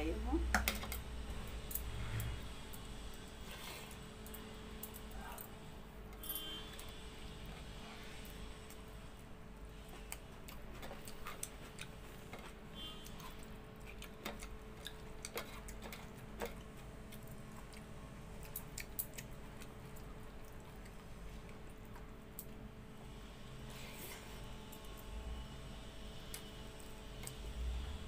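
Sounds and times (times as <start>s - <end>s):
faint steady hum: 0.0s - 28.0s
chewing smacks: 13.0s - 22.6s.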